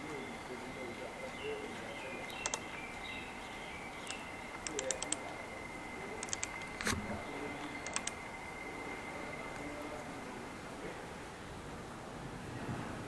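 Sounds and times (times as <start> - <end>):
socket ratchet clicking: 6.2 - 7.0.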